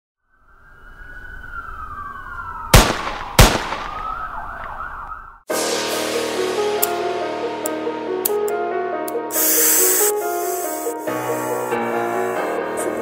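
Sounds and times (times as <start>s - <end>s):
siren-like wailing tones: 0.2s - 5.5s
music: 5.5s - 13.0s.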